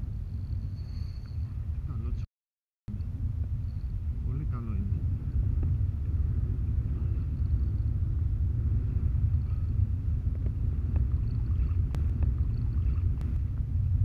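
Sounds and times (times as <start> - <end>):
wind buffeting microphone: 2.9 - 14.0.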